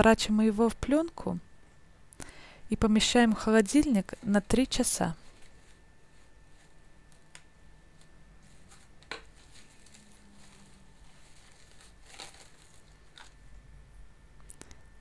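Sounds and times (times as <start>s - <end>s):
cling film crinkling: 8.0s - 13.4s.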